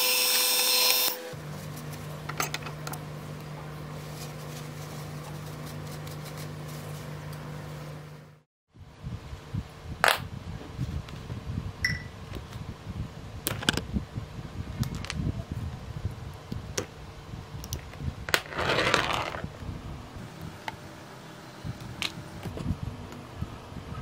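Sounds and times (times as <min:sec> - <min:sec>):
scraping crunch: 0:18.3 - 0:19.5.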